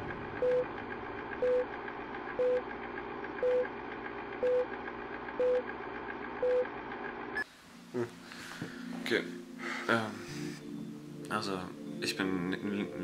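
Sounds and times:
countdown beeps: 1.4s - 1.6s, 3.4s - 3.6s.

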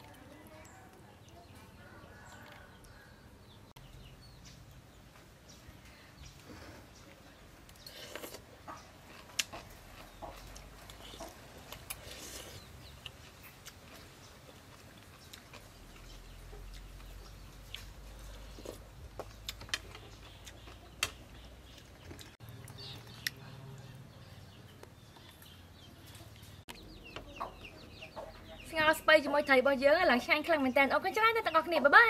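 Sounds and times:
chickens clucking: 6.2s - 29.8s.

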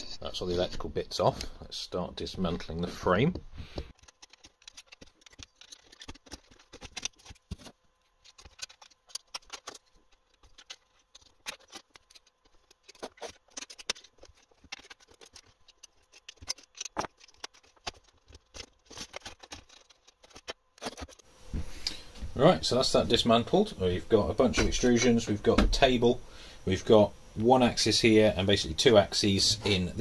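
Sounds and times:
metal parts clicking and knocking: 3.8s - 21.2s.

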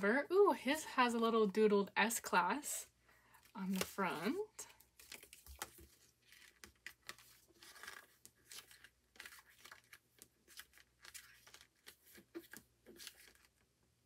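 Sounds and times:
paper and card rustling: 3.4s - 13.7s.

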